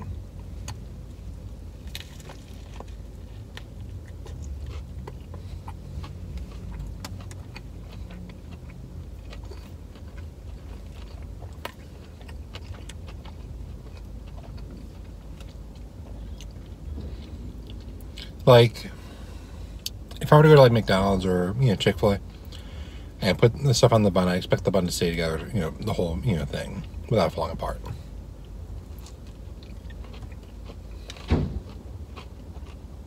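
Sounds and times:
car interior rumble: 0:00.0 - 0:33.0
person chewing with mouth clicks: 0:01.8 - 0:18.4, 0:27.9 - 0:33.0.

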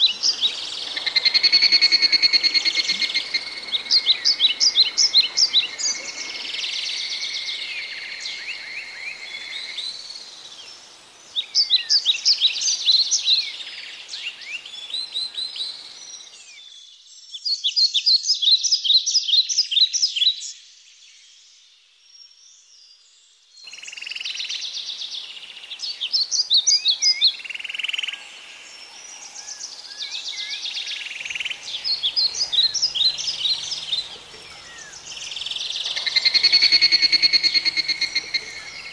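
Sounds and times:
animal chirping high-pitched calls: 0:00.0 - 0:07.1, 0:31.2 - 0:38.9
gliding whistled calls: 0:00.0 - 0:16.6, 0:23.7 - 0:38.9
natural background: 0:00.0 - 0:38.9.

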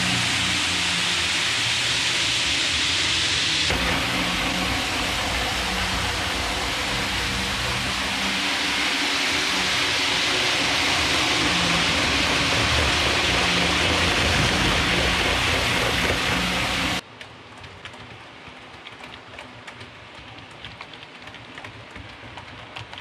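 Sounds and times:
low motor hum: 0:00.0 - 0:17.0
model train wheels rushing on rail: 0:00.0 - 0:17.0.

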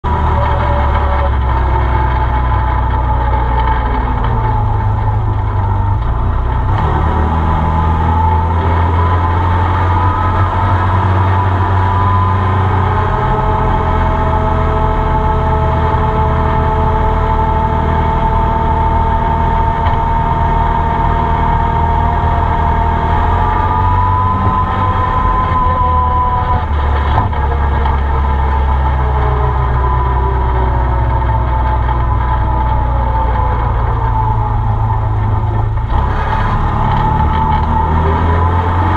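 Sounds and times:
high whine: 0:00.0 - 0:38.9
utility vehicle engine running: 0:00.0 - 0:38.9.

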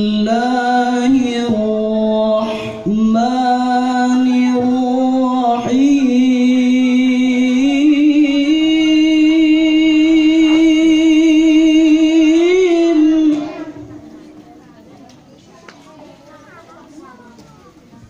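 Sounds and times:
man chanting melodically: 0:00.0 - 0:13.9.

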